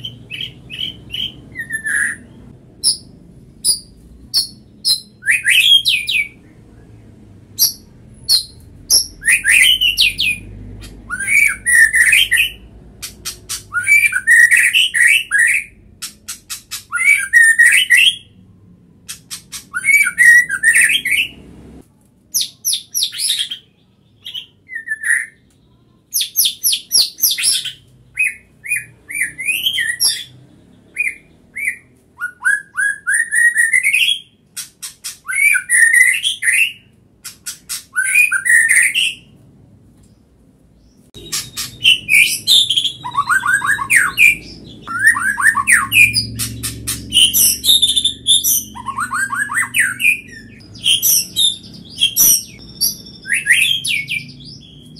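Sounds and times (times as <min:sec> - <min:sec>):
bird singing whistles and clicks: 0:41.2 - 0:54.8.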